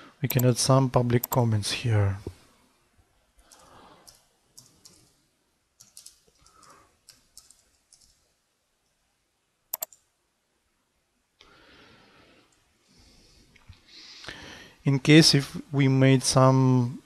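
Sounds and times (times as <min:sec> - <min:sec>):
keyboard typing: 0:01.2 - 0:01.4, 0:03.5 - 0:05.2, 0:05.8 - 0:08.2, 0:09.7 - 0:10.0
mouse button clicks: 0:09.7 - 0:10.0.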